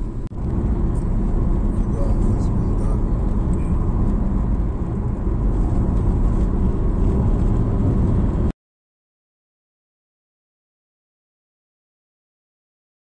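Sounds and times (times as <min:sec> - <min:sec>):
car cabin road and engine noise: 0:00.0 - 0:08.5.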